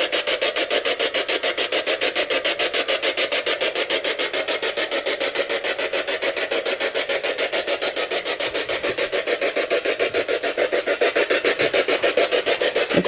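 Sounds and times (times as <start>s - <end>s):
pulsing radio static: 12.8s - 13.0s.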